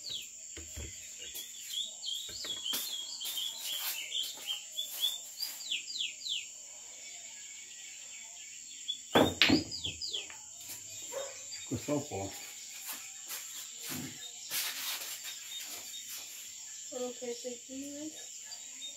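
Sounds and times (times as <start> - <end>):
high insect drone: 0.0 - 18.9
high falling chirps: 1.0 - 6.6
pool balls clacking: 9.2 - 9.9.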